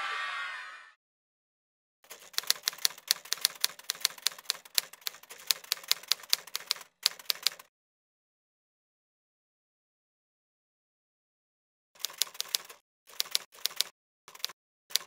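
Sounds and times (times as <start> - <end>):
typewriter keys clacking: 2.1 - 7.7, 12.0 - 15.0.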